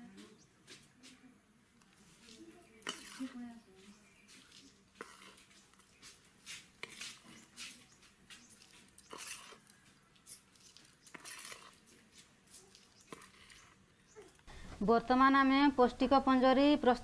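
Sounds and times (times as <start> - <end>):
spoon scraping a steel plate: 2.8 - 3.4, 5.0 - 5.5, 8.6 - 9.7, 10.3 - 11.9.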